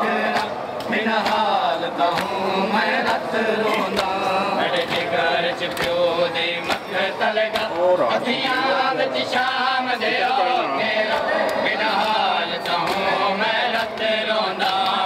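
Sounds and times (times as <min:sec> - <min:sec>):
men chanting a lament: 0:00.0 - 0:15.0
hands slapping on chests: 0:00.2 - 0:06.1, 0:07.5 - 0:07.9, 0:11.1 - 0:15.0.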